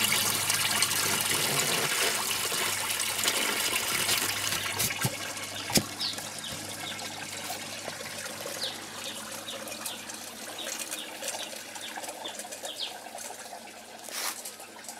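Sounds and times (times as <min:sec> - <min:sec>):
water trickling: 0:00.0 - 0:14.9
small birds chirping: 0:05.5 - 0:07.2, 0:08.4 - 0:13.0.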